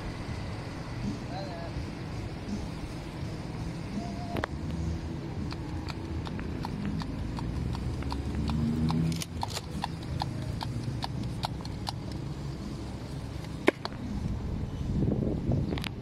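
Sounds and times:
steady low rumble: 0.0s - 16.0s
regular sharp clicking: 5.4s - 12.2s.

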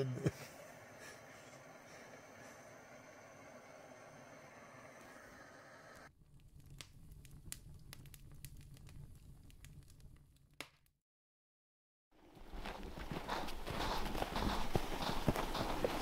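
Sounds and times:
faint crackles and ticks: 6.0s - 10.5s.

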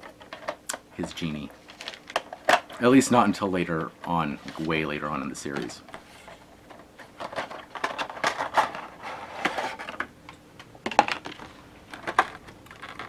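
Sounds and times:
plastic packaging crinkling: 1.2s - 2.9s, 11.2s - 13.0s.

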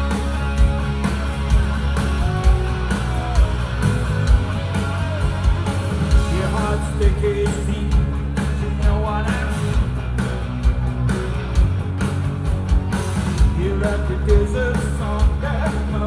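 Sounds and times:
bass guitar: 0.0s - 16.0s
drum beat: 0.0s - 16.0s
electric guitar: 0.0s - 16.0s
man singing lead vocals: 4.4s - 9.9s, 13.5s - 16.0s.

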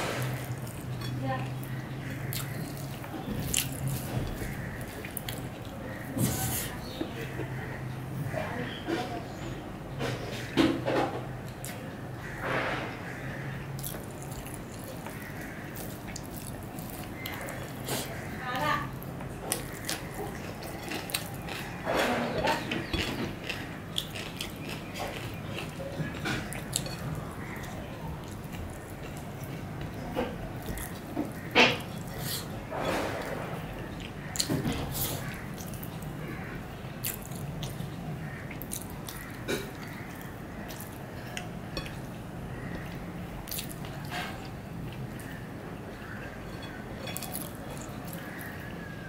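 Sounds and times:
close chewing: 0.0s - 7.6s, 13.8s - 32.6s, 33.2s - 48.9s.

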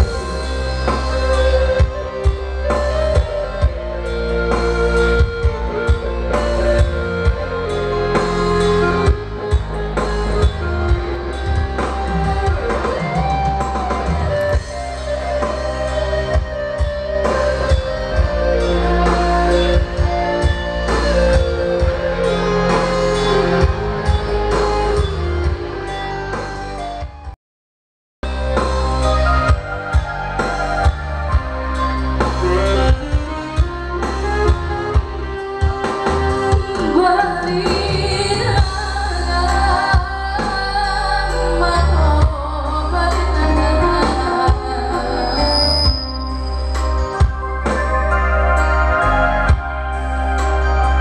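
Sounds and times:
steady drum beat: 0.0s - 26.6s, 28.2s - 39.0s
sustained melody line: 0.0s - 27.2s, 28.2s - 51.0s
pop band playing over loudspeakers: 0.0s - 27.3s, 28.2s - 51.0s
heavy bass: 0.0s - 27.4s, 28.2s - 51.0s.

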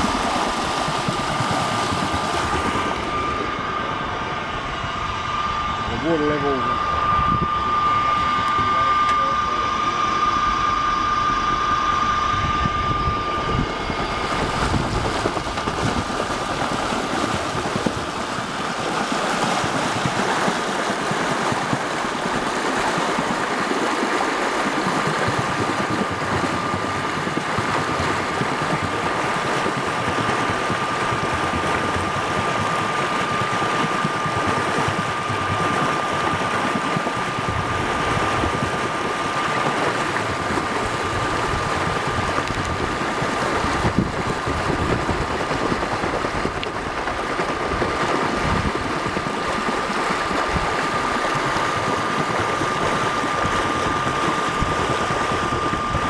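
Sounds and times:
electric motor whining: 0.0s - 18.4s
slurry churning: 14.1s - 56.0s.

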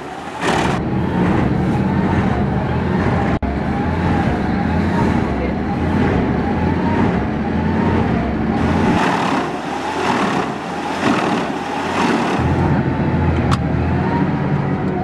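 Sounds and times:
wood chipper running: 8.6s - 12.7s.

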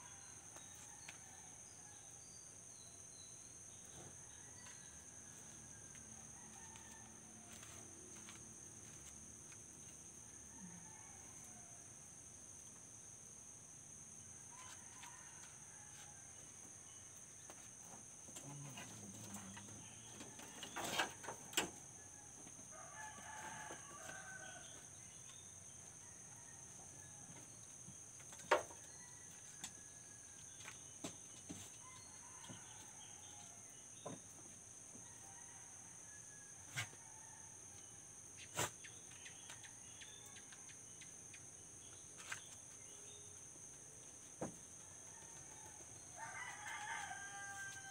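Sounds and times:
rooster crowing faintly: 4.1s - 8.3s, 45.0s - 47.9s.

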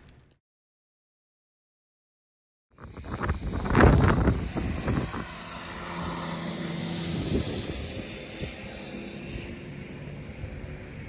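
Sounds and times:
motor drone: 2.8s - 11.0s.

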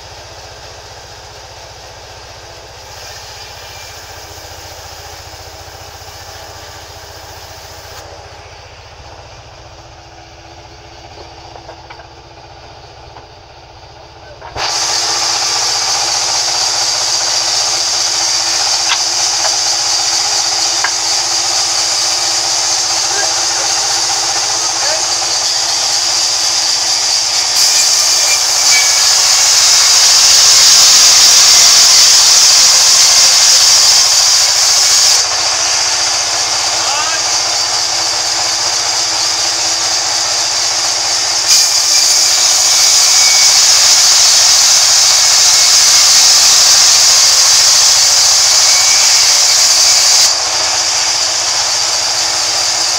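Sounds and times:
high hiss: 0.0s - 11.5s, 14.6s - 52.9s
band saw machine drone: 0.0s - 52.9s.

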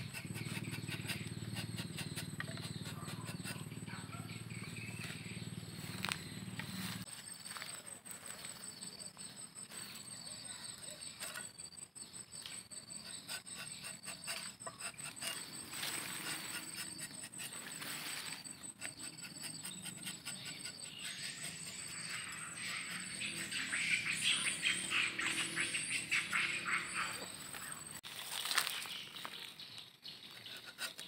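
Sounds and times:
knife scraping tree bark: 0.0s - 5.2s, 10.8s - 11.6s, 12.9s - 24.5s, 30.1s - 31.0s
high insect trill: 0.0s - 28.9s.

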